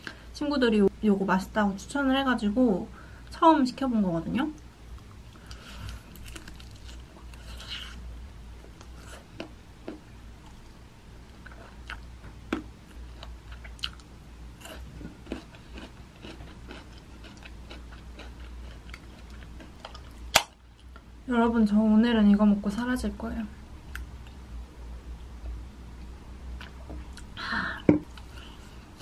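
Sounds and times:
low steady hum: 0.0s - 29.0s
chewing chicken wings: 13.2s - 20.1s.

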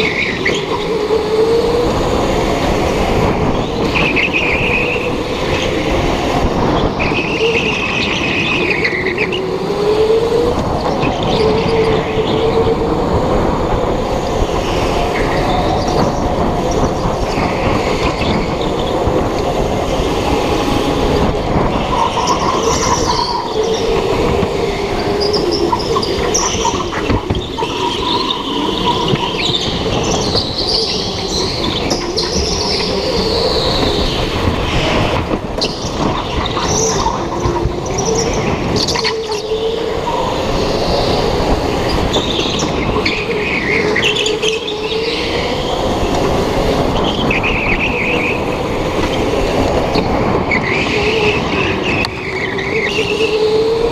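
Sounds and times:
go-kart motor: 0.0s - 53.9s
tyre squeals: 21.8s - 46.1s, 49.9s - 53.9s.

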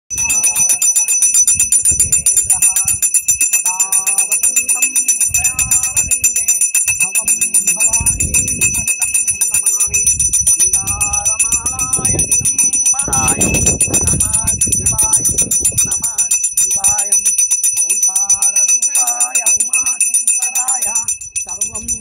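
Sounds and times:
brass hand bell ringing rapidly: 0.1s - 22.0s
person chanting: 3.6s - 10.0s, 10.6s - 17.3s.

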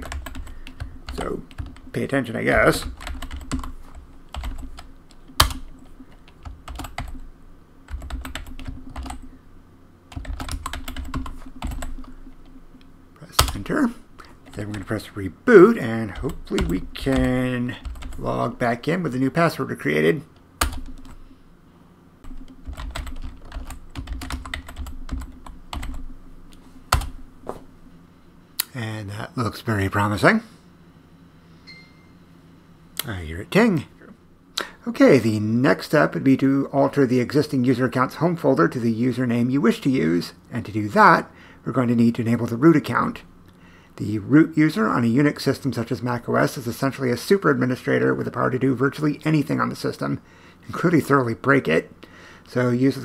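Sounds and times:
computer keyboard typing: 0.0s - 1.9s, 2.8s - 7.3s, 7.9s - 9.3s, 10.1s - 12.6s, 16.2s - 18.2s, 20.6s - 21.2s, 22.2s - 26.1s.

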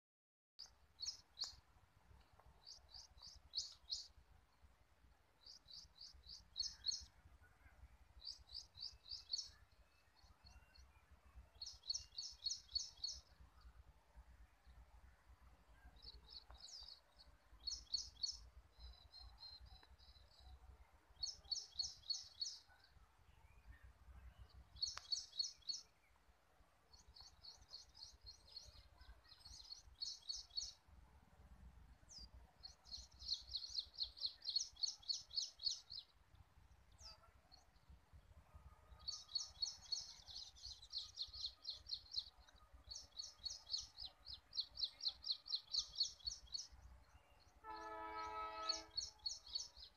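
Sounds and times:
bird singing rapid chirps: 32.1s - 36.1s, 39.0s - 47.5s, 48.2s - 49.9s.

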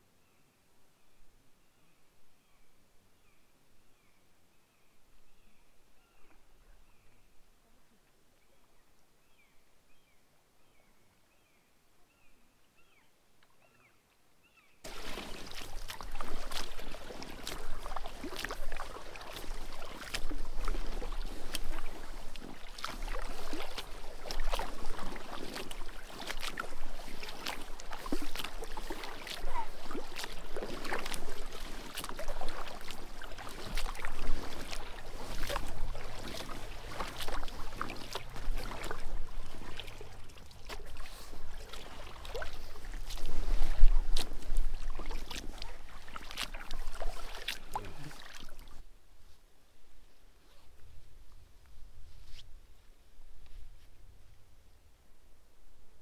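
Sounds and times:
faint bird chirps: 0.2s - 14.8s
paddle splashing water: 14.8s - 49.3s.

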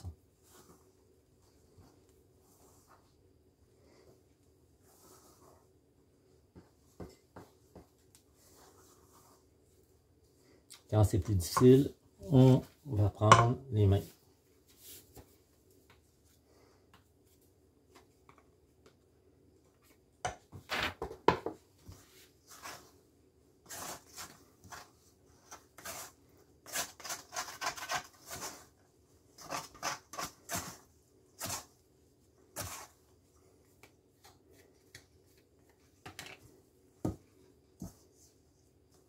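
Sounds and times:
dough scraped in steel bowl: 22.5s - 23.0s, 23.6s - 28.8s, 29.4s - 31.8s, 32.5s - 33.0s.

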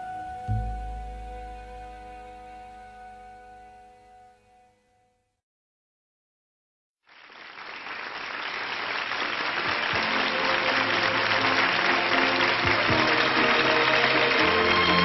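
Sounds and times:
audience applause: 7.1s - 15.0s.

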